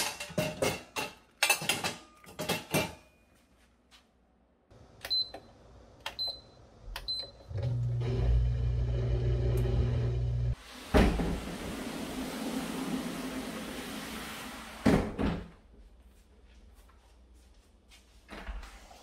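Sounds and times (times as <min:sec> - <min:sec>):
metal pots and dishes clattering: 0:00.0 - 0:03.2
dishwasher humming: 0:06.0 - 0:15.6.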